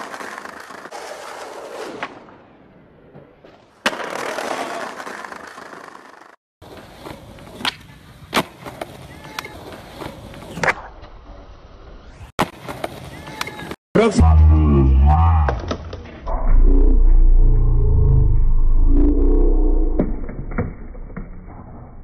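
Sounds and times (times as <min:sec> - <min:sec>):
skateboard scraping along ledge: 0:00.0 - 0:02.2
skateboard wheels rolling: 0:00.0 - 0:13.8
skateboard smack: 0:03.1 - 0:05.8, 0:06.7 - 0:10.9, 0:12.4 - 0:13.7
skateboard landing pops and clacks: 0:03.5 - 0:05.9.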